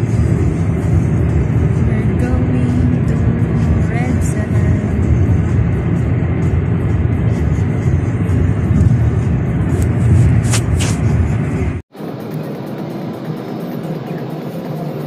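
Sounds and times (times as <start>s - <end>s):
road and engine noise in car cabin: 0.0s - 15.0s
brief scratchy sounds: 9.6s - 11.2s.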